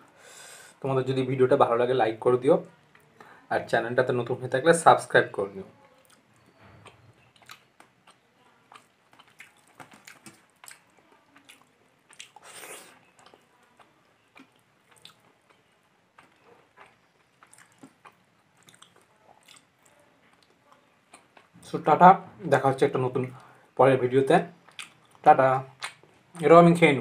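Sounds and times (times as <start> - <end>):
chewing with mouth smacks: 6.0 - 21.6, 24.6 - 26.2.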